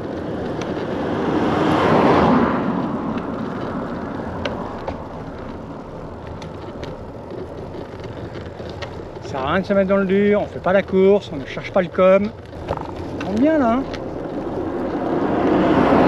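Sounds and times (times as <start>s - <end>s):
vehicle passing by: 0.0s - 6.2s, 12.7s - 16.0s.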